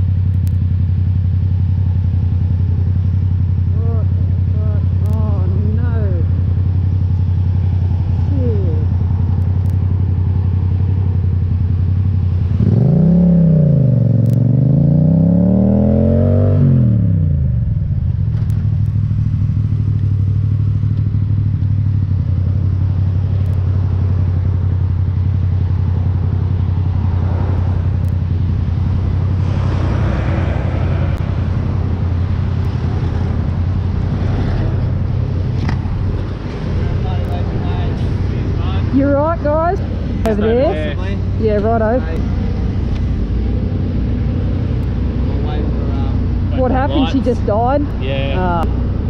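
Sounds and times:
motorcycle engine accelerating: 0:00.0 - 0:49.0.

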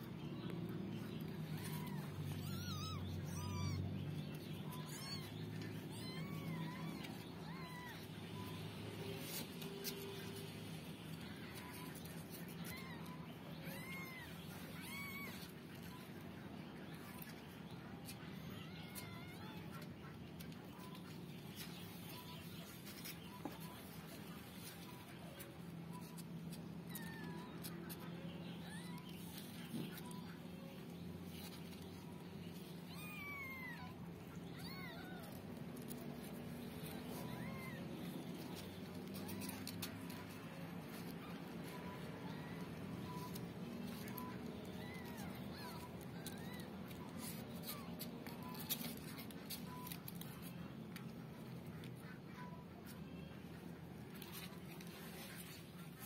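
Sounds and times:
kittens mewing: 0:00.6 - 0:56.0.

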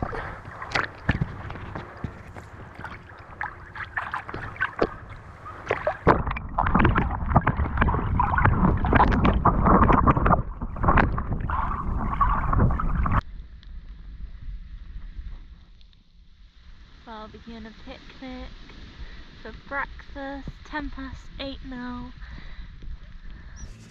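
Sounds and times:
water splashing from swimming: 0:00.0 - 0:13.2.

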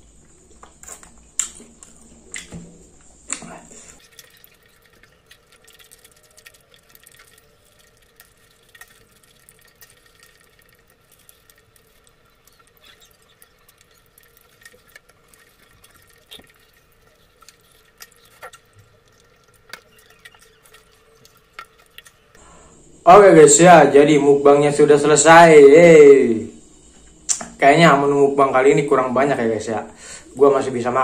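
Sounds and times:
faint steady hum: 0:00.0 - 0:31.0
wet chewing mouth clicks: 0:00.8 - 0:02.6.

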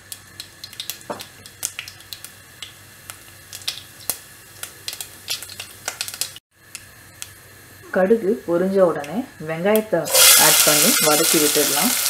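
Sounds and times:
seeds popping in hot oil: 0:00.0 - 0:07.4, 0:09.8 - 0:12.0.

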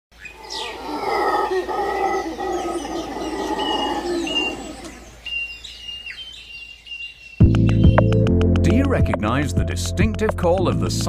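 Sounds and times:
birds chirping: 0:00.1 - 0:09.4
howler monkeys howling: 0:00.2 - 0:06.1.

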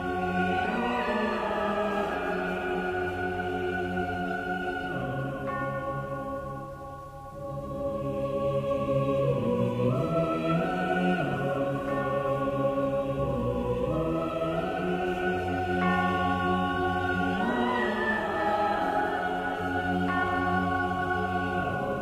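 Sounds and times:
choir singing long chords: 0:00.0 - 0:22.0.

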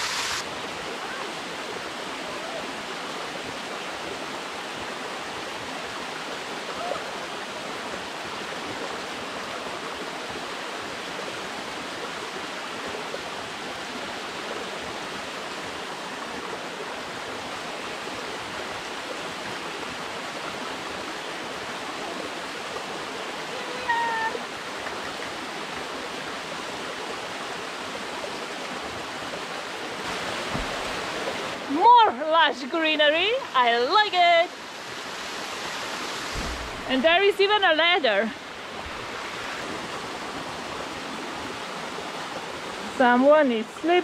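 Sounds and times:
waterfall splashing into pool: 0:00.0 - 0:05.3, 0:30.0 - 0:31.7, 0:34.5 - 0:37.2.

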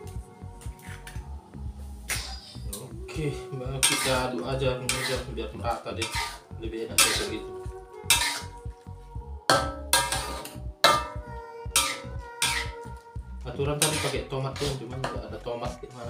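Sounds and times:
utensil scraping and clanking wok: 0:03.8 - 0:05.3, 0:06.0 - 0:06.4, 0:07.0 - 0:07.4, 0:08.1 - 0:08.6, 0:09.5 - 0:11.2, 0:11.8 - 0:12.8, 0:13.8 - 0:15.2.

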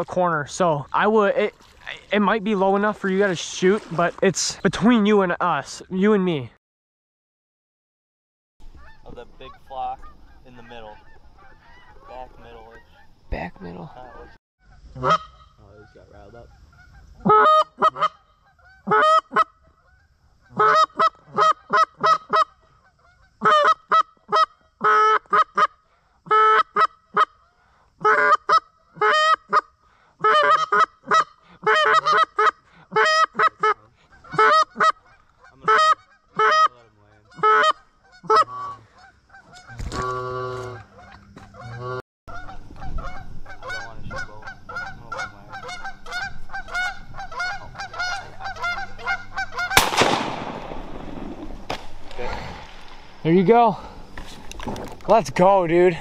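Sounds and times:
geese honking: 0:08.6 - 0:54.5
shotgun blast: 0:49.7 - 0:53.2.

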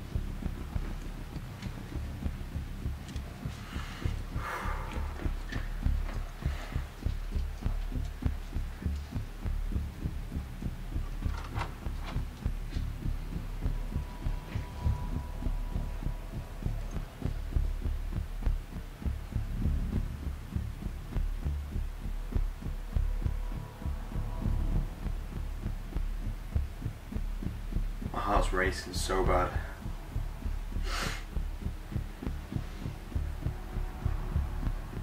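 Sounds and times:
low throbbing pulse with hum: 0:00.0 - 0:35.0.

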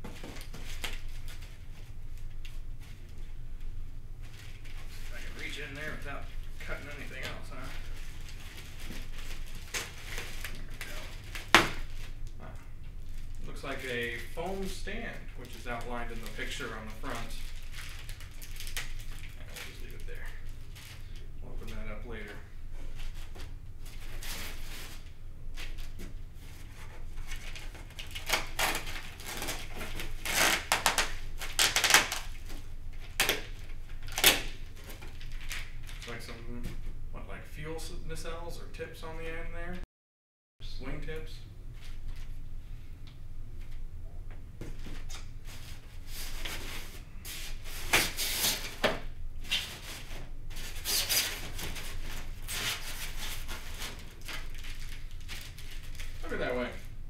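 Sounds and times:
packaging rustling and crinkling: 0:00.0 - 0:03.3, 0:04.2 - 0:36.4, 0:44.6 - 0:56.8
foam parts rustling against cardboard: 0:44.7 - 0:56.6.

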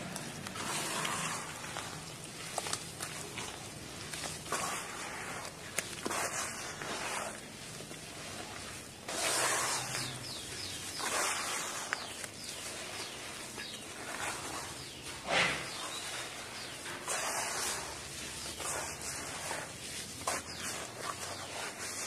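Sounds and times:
hands squelching wet paste: 0:00.0 - 0:22.0.

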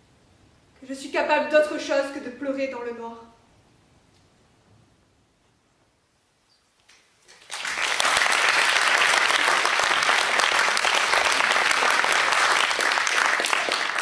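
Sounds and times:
audience applause: 0:07.3 - 0:14.0.

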